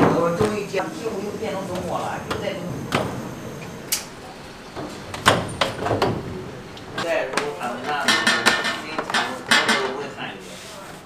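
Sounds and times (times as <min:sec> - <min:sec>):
metal drawer sliding and knocking: 0:01.7 - 0:10.1.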